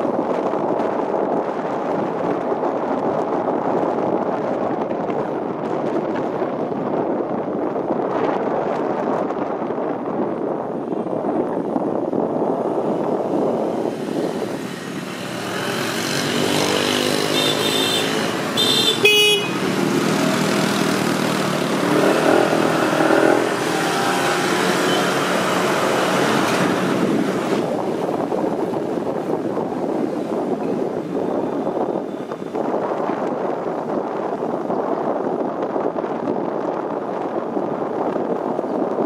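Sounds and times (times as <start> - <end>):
motorbike engines running: 13.3 - 31.6
horn beeps: 17.2 - 19.6.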